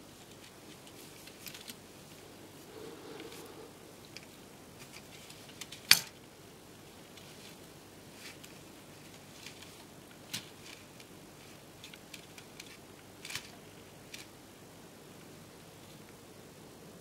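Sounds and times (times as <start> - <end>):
soft fabric rustling: 0.1 - 5.6.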